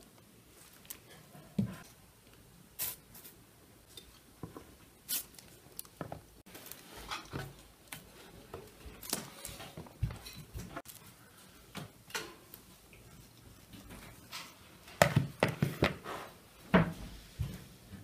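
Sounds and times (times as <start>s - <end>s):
pastries tapping on tray and board: 15.0s - 16.0s.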